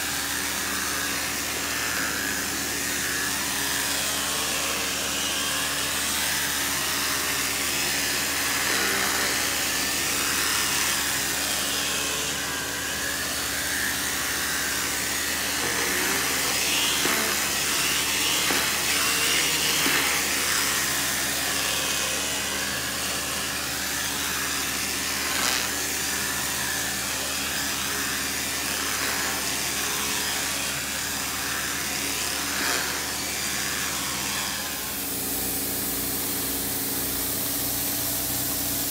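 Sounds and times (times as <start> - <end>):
vacuum motor running: 0.0 - 38.9
suction hissing over wet carpet: 14.1 - 21.6, 34.7 - 38.9.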